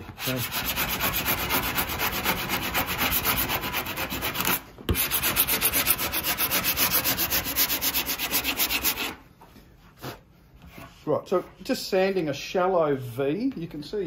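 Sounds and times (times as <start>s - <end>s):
sanding block rubbing: 0.0s - 9.2s.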